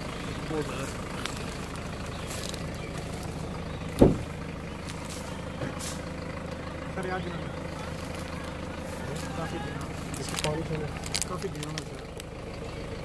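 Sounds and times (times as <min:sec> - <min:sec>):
vehicle engine idling: 0:00.0 - 0:13.0
loud thump: 0:04.0 - 0:04.3.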